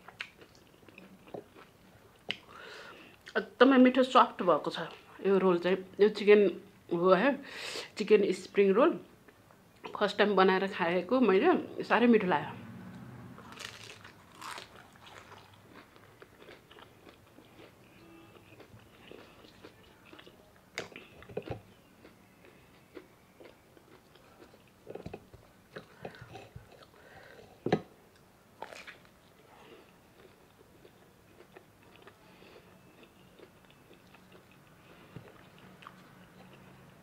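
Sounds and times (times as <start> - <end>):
crisp bites and chewing: 13.4 - 17.7, 28.6 - 29.1.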